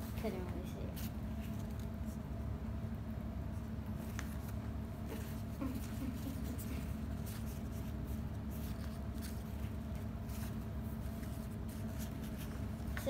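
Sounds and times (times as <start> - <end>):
rustling of hair bows: 3.9 - 13.0.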